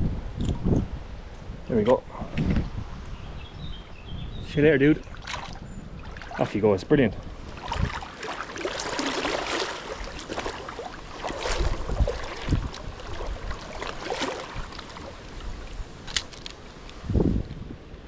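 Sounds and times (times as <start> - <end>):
stream water rippling: 4.8 - 17.1.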